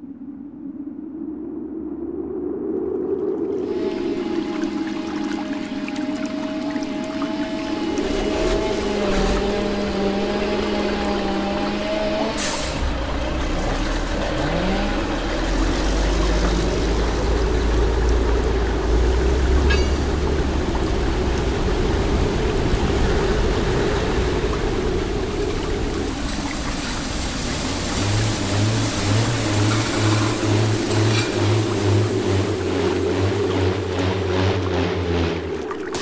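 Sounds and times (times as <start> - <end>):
constant hum: 0.0 - 36.0
low engine rumble: 7.4 - 35.9.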